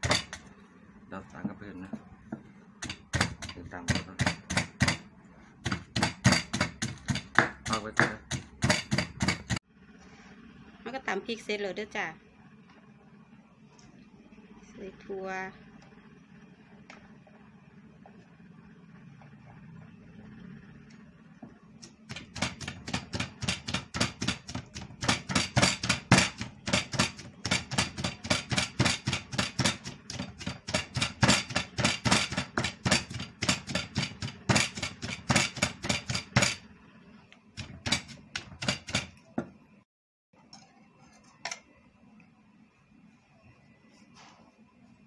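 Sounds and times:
wooden pestle pounding in mortar: 0:00.0 - 0:00.5, 0:01.4 - 0:09.6, 0:21.8 - 0:36.6, 0:37.6 - 0:39.5.

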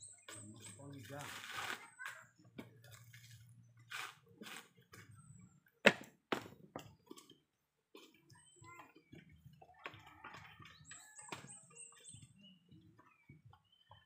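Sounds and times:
coconut shells knocking and clattering: 0:05.8 - 0:08.2.

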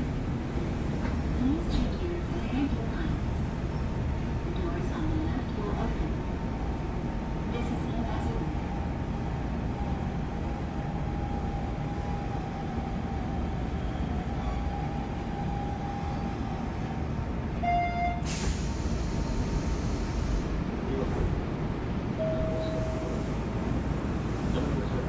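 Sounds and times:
electric train wheels rumbling on rail: 0:00.0 - 0:25.0
hiss: 0:18.2 - 0:20.5
brief pitched tone: 0:22.2 - 0:23.3.

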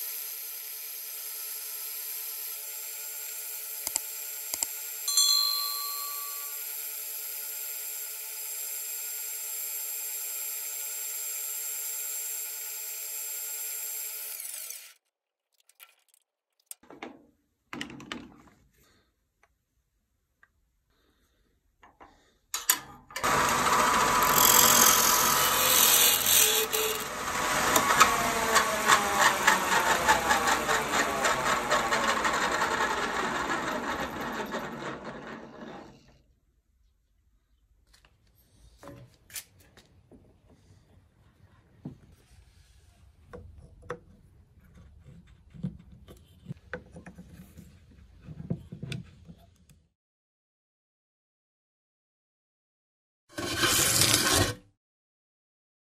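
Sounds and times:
wood lathe motor running: 0:23.2 - 0:35.9.

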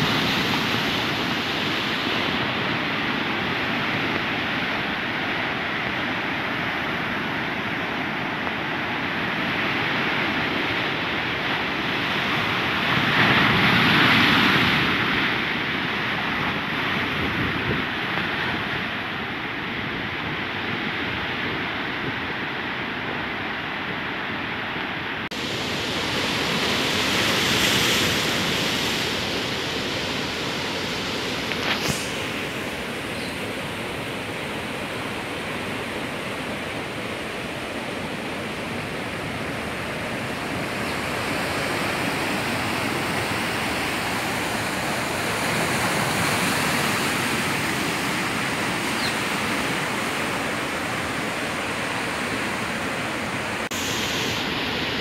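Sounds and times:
surf breaking over rocks: 0:25.3 - 0:55.0.

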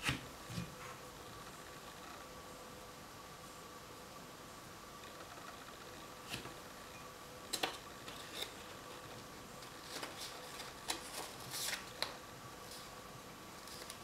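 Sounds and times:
paper crackling and rustling: 0:08.0 - 0:12.9, 0:13.6 - 0:14.0.

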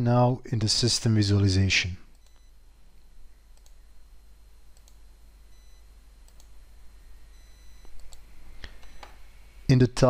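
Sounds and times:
low steady hiss: 0:00.0 - 0:10.0
computer mouse clicks: 0:02.1 - 0:02.5, 0:03.6 - 0:03.8, 0:04.7 - 0:05.0, 0:06.2 - 0:06.6, 0:07.8 - 0:09.2.

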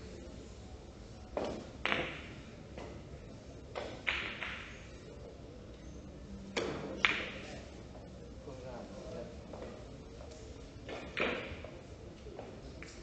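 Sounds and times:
billiard balls clicking: 0:03.7 - 0:04.8.

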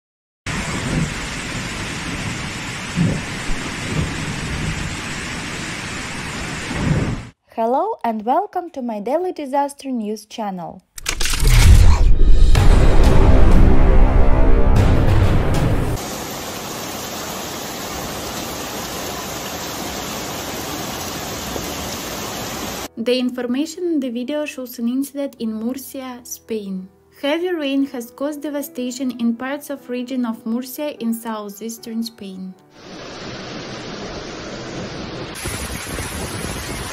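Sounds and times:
floodwater rushing: 0:00.5 - 0:06.8, 0:14.0 - 0:22.9, 0:32.8 - 0:36.9
heavy rain: 0:00.5 - 0:07.4, 0:12.6 - 0:22.9, 0:32.8 - 0:36.9
low rumbles: 0:11.0 - 0:16.0.

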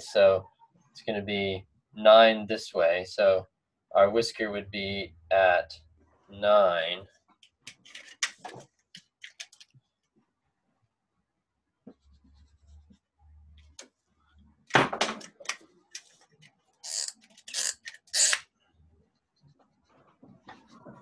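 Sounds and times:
marker scratching on whiteboard: 0:11.9 - 0:13.8, 0:16.0 - 0:18.4, 0:19.1 - 0:21.0.

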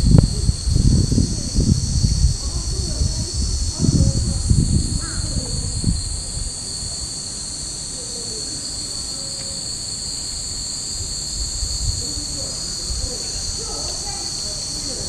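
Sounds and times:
low rumble: 0:00.0 - 0:06.9
cicadas droning: 0:00.0 - 0:15.0.

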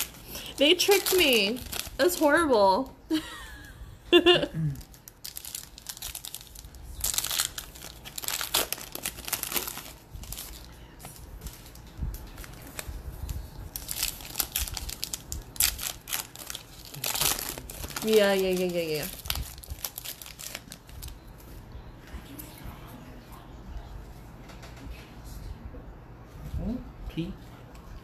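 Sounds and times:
foil pack tearing: 0:00.0 - 0:02.3, 0:04.8 - 0:10.7, 0:13.7 - 0:21.0
foil wrappers crinkling: 0:00.0 - 0:02.9, 0:04.6 - 0:21.2.

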